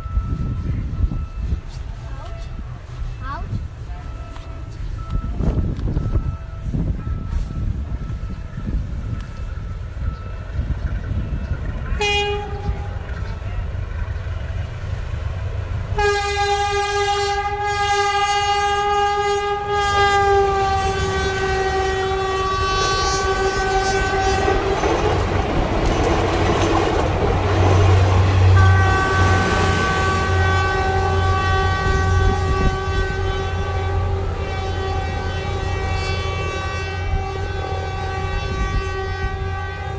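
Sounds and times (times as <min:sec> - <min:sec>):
train engine rumble: 0:00.0 - 0:39.9
locomotive horn blast: 0:11.9 - 0:13.4, 0:15.9 - 0:39.9
train wheels clattering: 0:20.5 - 0:31.2.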